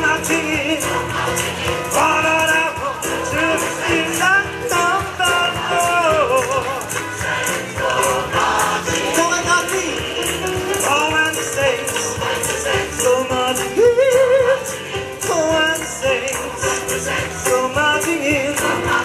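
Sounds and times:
man singing lead into microphone: 0:00.0 - 0:01.1, 0:01.8 - 0:07.1, 0:10.7 - 0:19.0
bass: 0:00.0 - 0:19.0
gospel choir singing: 0:00.0 - 0:19.0
shaker beat: 0:00.0 - 0:19.0.

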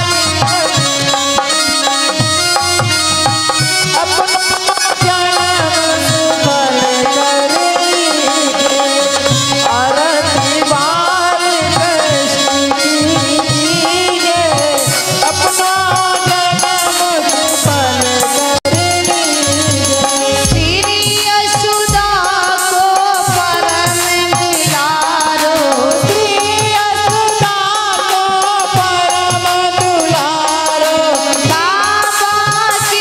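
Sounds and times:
devotional folk music: 0:00.0 - 0:33.0
hand drum rhythm: 0:00.0 - 0:33.0
high jingling percussion: 0:11.8 - 0:33.0.

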